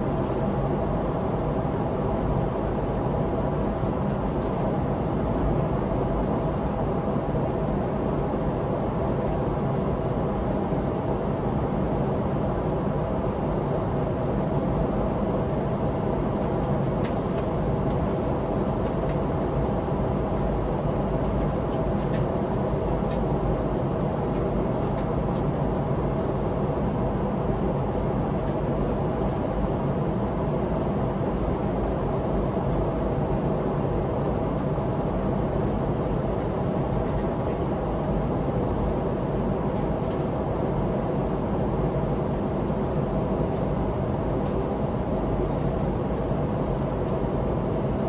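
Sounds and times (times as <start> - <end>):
airliner cabin noise: 0.0 - 48.0
faint steady hum: 0.0 - 48.0.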